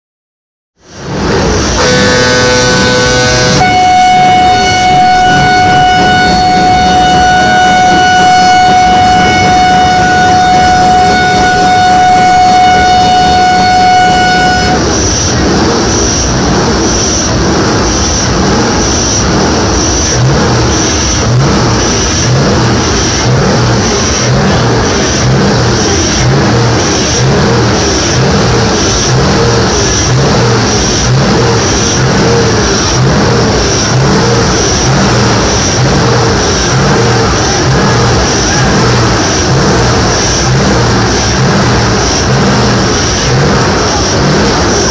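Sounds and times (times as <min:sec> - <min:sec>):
diesel truck engine revving: 0:00.9 - 0:44.9
truck air horn: 0:01.8 - 0:15.0.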